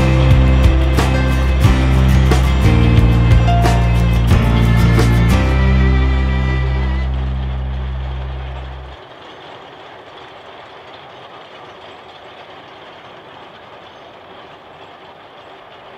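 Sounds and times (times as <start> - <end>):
background music: 0.0 - 8.9
steam locomotive working: 0.0 - 15.9.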